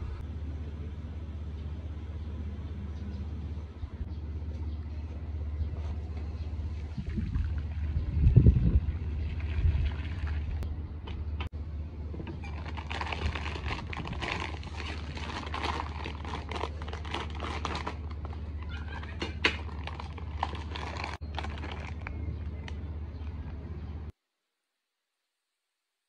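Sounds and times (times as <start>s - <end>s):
steady low hum: 0.0s - 18.8s
plastic packaging crinkling: 12.5s - 22.3s.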